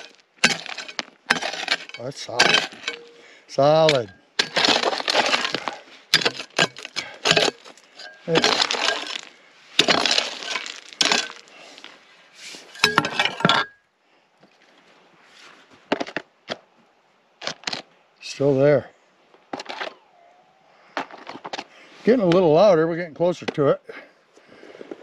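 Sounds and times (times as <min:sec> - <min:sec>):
pick striking and scraping rock: 0:00.0 - 0:13.8, 0:17.4 - 0:17.9.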